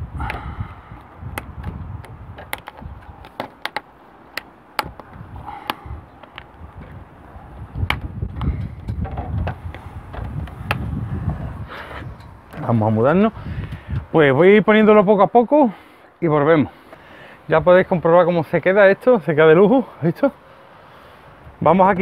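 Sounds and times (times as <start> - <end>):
wind on microphone: 0.0 - 3.4, 4.8 - 14.3, 21.3 - 22.0
plastic trim clicking into place: 1.3 - 6.5.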